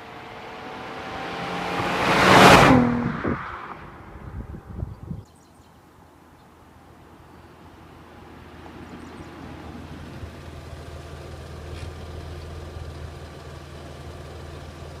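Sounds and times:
car engine idling: 7.6 - 15.0.

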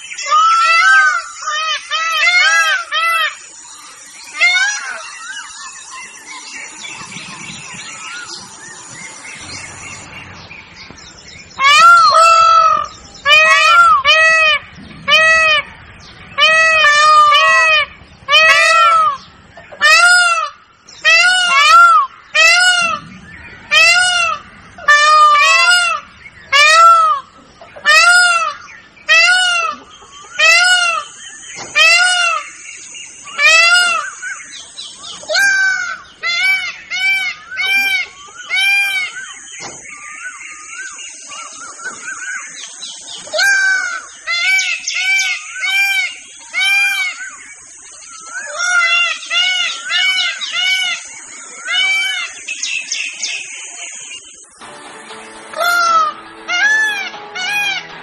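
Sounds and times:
peacock calling loudly: 0.0 - 6.1, 11.4 - 58.0.

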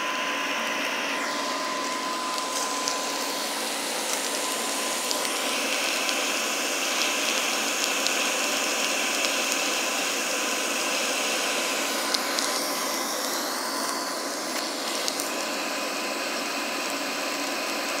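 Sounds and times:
air blower whirring: 0.0 - 18.0
fire crackling: 0.8 - 16.0.

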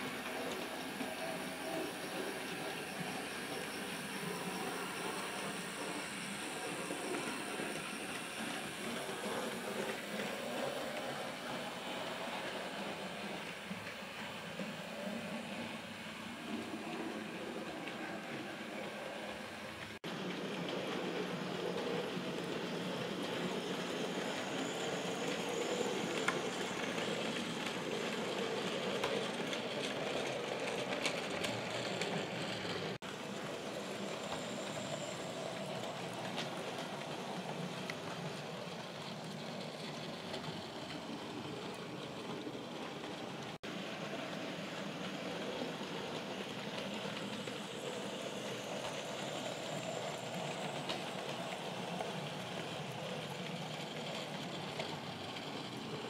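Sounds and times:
model train motor whirring: 0.0 - 56.0.

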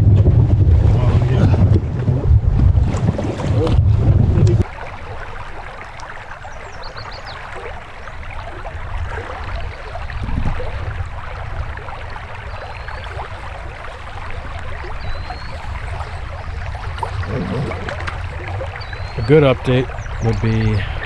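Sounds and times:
low steady rumble: 0.0 - 5.2
river babbling: 4.6 - 21.0.

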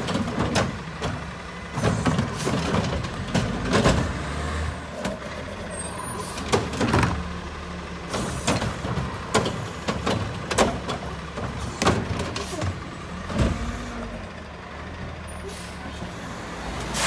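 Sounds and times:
trash cart clanking against container: 0.0 - 7.4, 8.0 - 13.8
garbage truck idling: 0.0 - 16.6.

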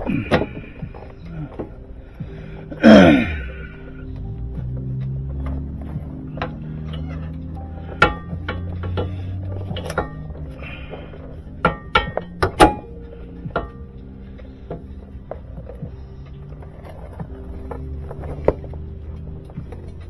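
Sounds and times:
background music with held notes: 0.0 - 20.0.

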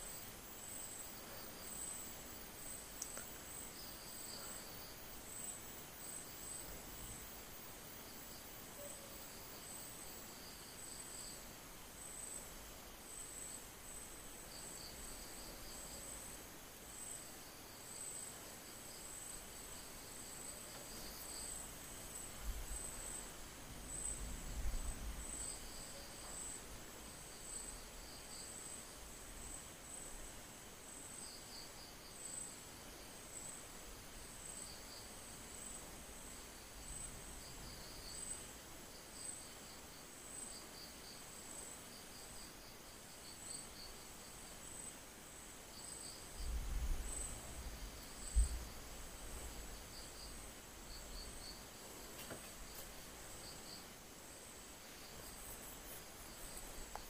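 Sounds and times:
insects trilling: 45.7 - 57.0.

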